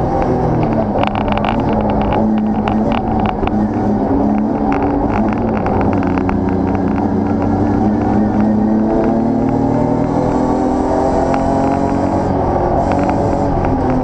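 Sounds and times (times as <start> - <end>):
race car engine under load: 0.0 - 14.0
light ticks and rattles: 0.2 - 8.2.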